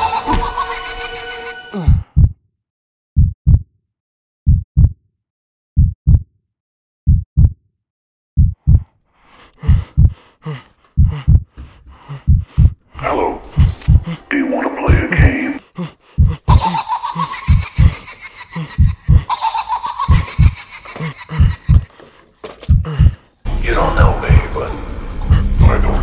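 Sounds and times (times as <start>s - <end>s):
heartbeat thumps: 1.9s - 2.4s, 3.2s - 3.7s, 4.5s - 5.0s, 5.8s - 6.3s, 7.1s - 7.6s, 8.4s - 8.9s, 9.6s - 10.3s, 11.0s - 12.8s, 13.5s - 14.2s, 14.8s - 15.5s, 16.2s - 16.6s, 18.7s - 19.3s, 20.1s - 20.6s, 21.4s - 21.9s, 22.6s - 23.2s, 24.2s - 24.5s.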